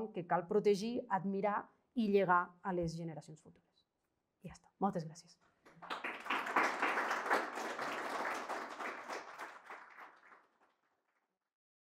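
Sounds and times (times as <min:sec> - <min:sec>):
audience applauding: 0:05.7 - 0:10.9.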